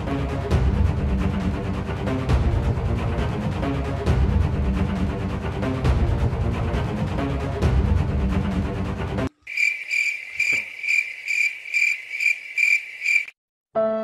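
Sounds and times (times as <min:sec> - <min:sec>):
dramatic background music: 0:00.0 - 0:09.3
cricket chirping: 0:09.3 - 0:13.4.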